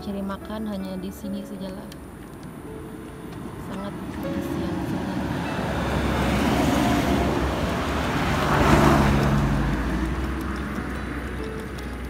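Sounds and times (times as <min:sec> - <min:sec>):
vehicle passing: 0:02.5 - 0:12.0.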